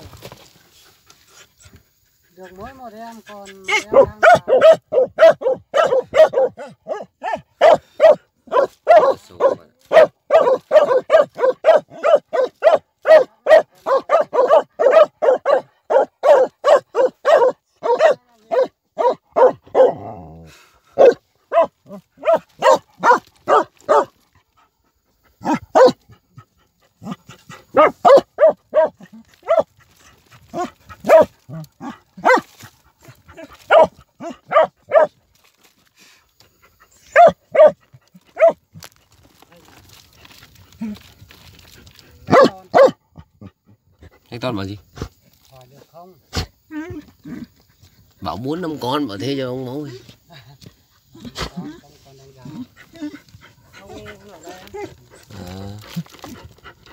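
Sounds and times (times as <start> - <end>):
dogs barking rapidly: 3.6 - 20.1, 20.9 - 24.2, 25.3 - 35.2, 36.9 - 38.6, 42.2 - 44.1.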